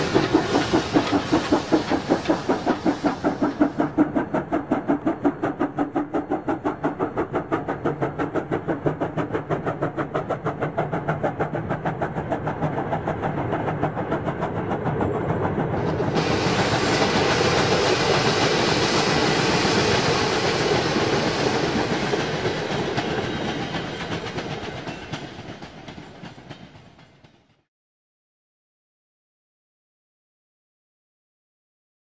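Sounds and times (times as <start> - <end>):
steam locomotive chuffing: 0.0 - 27.6
train wheels rolling on rails: 0.0 - 27.6.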